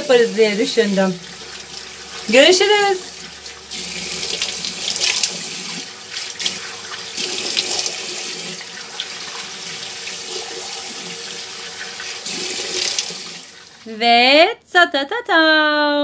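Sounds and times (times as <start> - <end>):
water splashing on face: 0.2 - 13.7
tap running into sink: 3.2 - 13.4.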